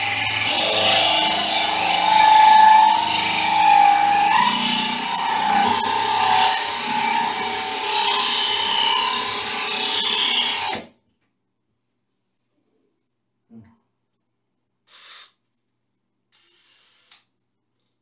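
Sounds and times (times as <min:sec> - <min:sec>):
drill grinding through tile: 0:00.0 - 0:10.8
drill motor whirring: 0:00.0 - 0:10.9.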